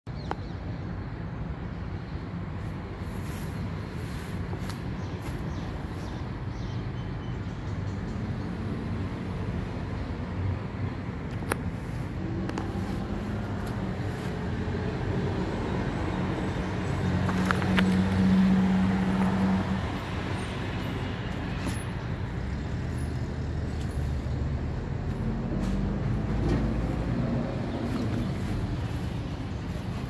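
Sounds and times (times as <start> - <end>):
road traffic rumble: 0.1 - 30.0
vehicle engine humming: 8.8 - 30.0.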